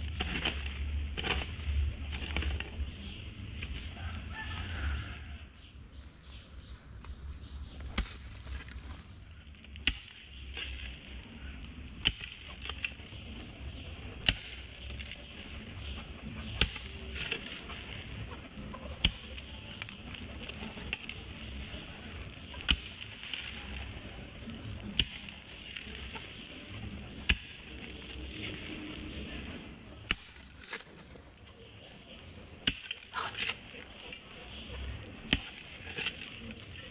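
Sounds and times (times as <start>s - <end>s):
hoe chopping into soil: 22.4s - 23.8s, 27.2s - 27.9s.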